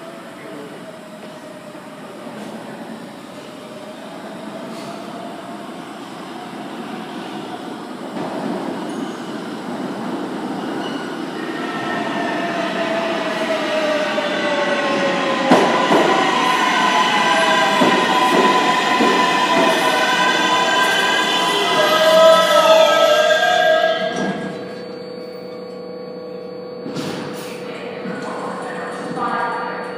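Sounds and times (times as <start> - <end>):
subway train rumbling: 0.0 - 29.9
train brakes squealing and whining: 8.8 - 27.6.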